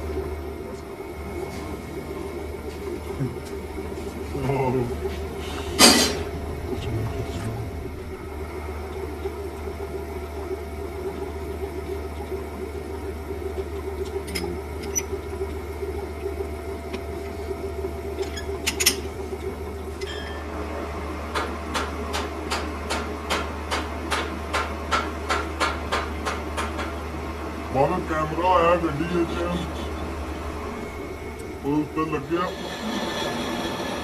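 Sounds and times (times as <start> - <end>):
metal lathe motor hum: 3.4 - 10.0, 29.8 - 34.0.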